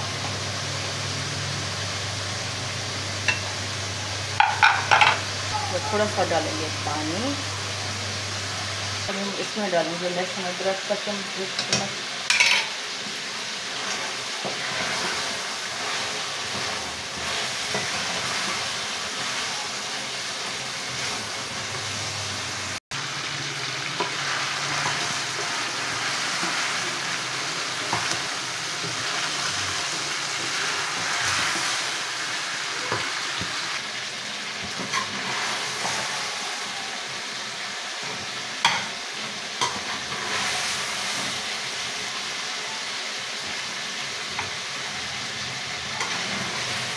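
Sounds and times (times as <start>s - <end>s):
chicken sizzling in a pan: 0.0s - 46.9s
spatula knocking against pan: 4.4s - 5.2s.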